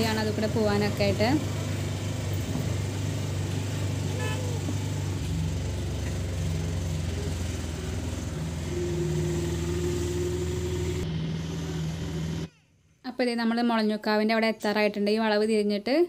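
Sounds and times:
wind and road noise: 0:00.0 - 0:12.5
auto-rickshaw engine running: 0:00.0 - 0:12.6
steady higher tone: 0:08.4 - 0:12.5.

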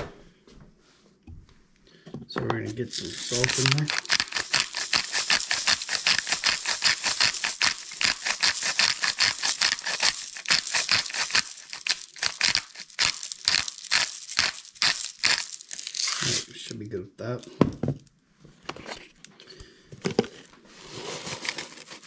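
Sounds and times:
salt rattling into plastic bowl: 0:02.7 - 0:16.6, 0:20.9 - 0:22.0.

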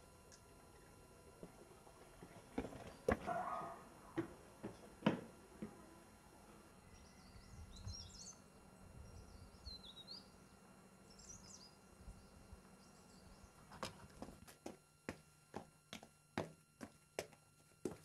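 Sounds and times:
faint bird chirping: 0:06.8 - 0:13.7.

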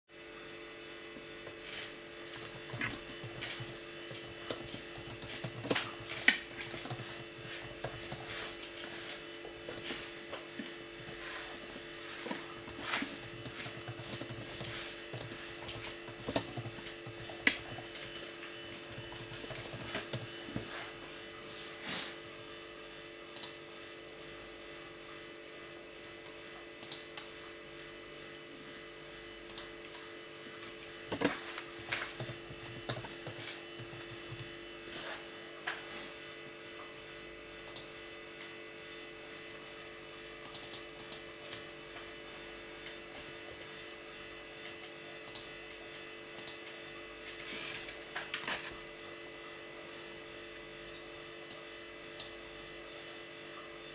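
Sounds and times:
steady hum: 0:00.1 - 0:53.9
keyboard typing: 0:02.4 - 0:08.4, 0:12.3 - 0:20.4, 0:31.2 - 0:34.6.

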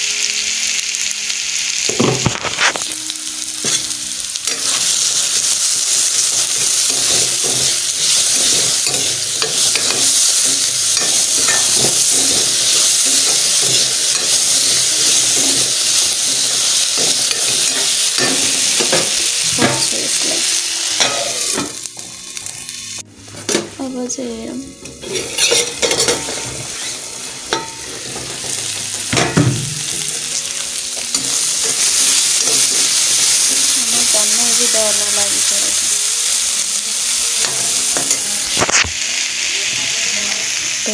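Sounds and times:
vegetables sizzling in oil: 0:00.0 - 0:40.9
spoon scraping pan: 0:24.8 - 0:28.2.

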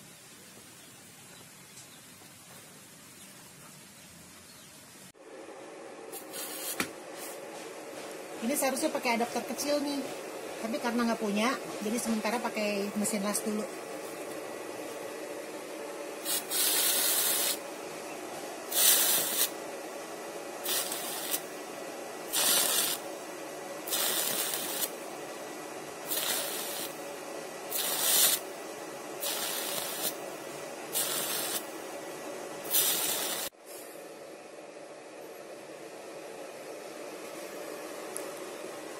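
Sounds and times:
steady machine hum: 0:05.0 - 0:38.9
swab hissing and sizzling: 0:16.2 - 0:17.6, 0:18.7 - 0:19.5, 0:20.6 - 0:21.4, 0:22.3 - 0:23.0, 0:23.9 - 0:24.9, 0:26.1 - 0:27.0, 0:27.7 - 0:28.4, 0:29.2 - 0:30.2, 0:30.9 - 0:31.7, 0:32.7 - 0:33.5.

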